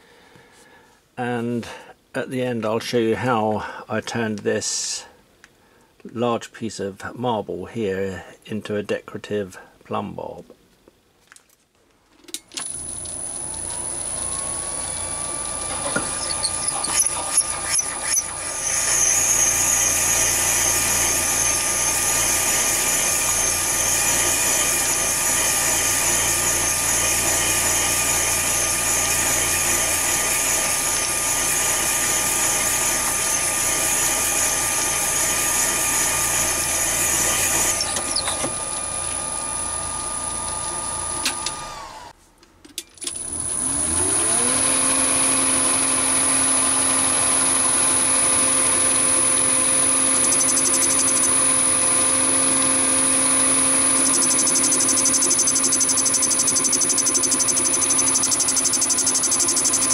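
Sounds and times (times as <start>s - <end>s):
high whine: 12.6s - 42.0s
lathe running: 12.6s - 42.1s, 43.2s - 59.9s
drill boring into stone: 12.6s - 42.2s, 43.1s - 59.9s.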